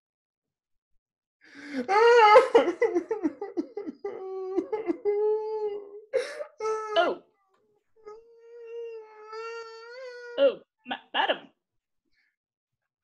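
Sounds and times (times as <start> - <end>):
man sobbing and wailing: 1.6 - 7.2.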